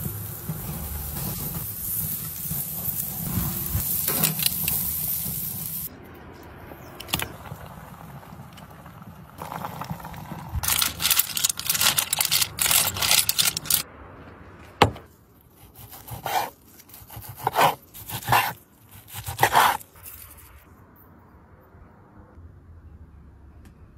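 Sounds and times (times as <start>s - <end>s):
dense crackling: 7.2s - 13.9s
knife sawing through steak: 15.7s - 19.8s.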